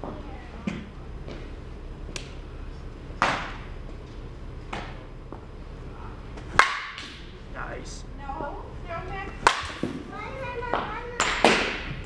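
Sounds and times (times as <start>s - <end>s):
ball striking batting cage: 3.1s - 3.8s, 4.6s - 5.0s, 6.3s - 7.4s, 9.3s - 10.1s, 10.7s - 12.0s
bat hitting softball: 3.2s - 3.7s, 6.5s - 7.3s, 9.4s - 10.0s, 11.2s - 12.0s.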